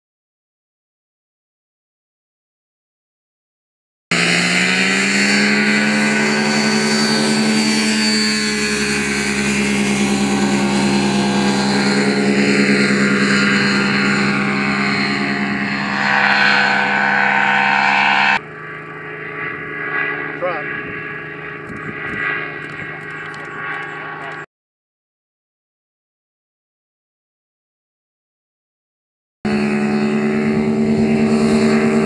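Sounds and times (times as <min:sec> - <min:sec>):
aircraft engine and propeller: 0:04.1 - 0:24.5, 0:29.5 - 0:32.0.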